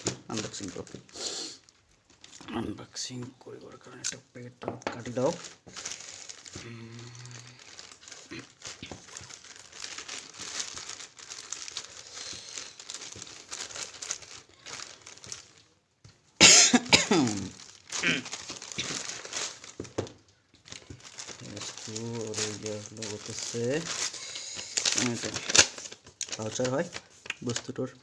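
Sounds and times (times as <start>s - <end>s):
plastic mailer crinkling: 0.0s - 2.7s, 5.0s - 15.8s, 17.1s - 27.9s
cough-like vocal burst: 16.4s - 18.2s.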